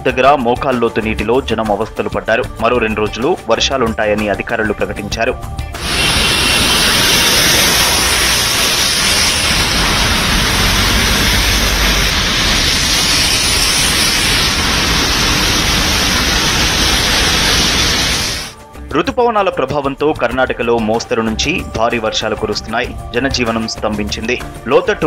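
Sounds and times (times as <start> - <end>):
water rushing over road: 5.8 - 18.5
heavy rain: 5.8 - 18.6.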